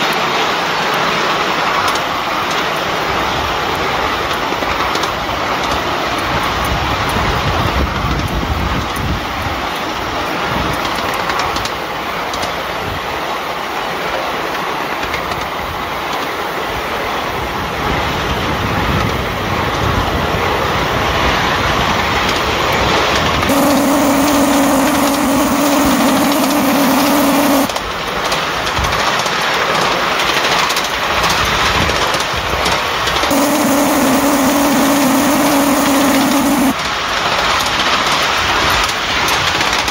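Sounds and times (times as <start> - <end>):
miniature train rolling on track: 0.0 - 27.0, 27.6 - 33.3, 37.2 - 39.9
steam whistle: 23.5 - 27.7.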